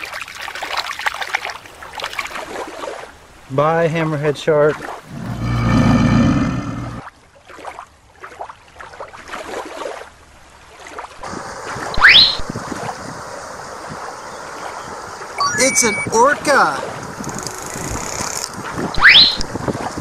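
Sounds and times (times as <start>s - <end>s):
rushing water: 0.0s - 20.0s
quick rising whistle: 12.0s - 12.4s, 19.0s - 19.4s
loud pitched tone: 15.4s - 16.6s.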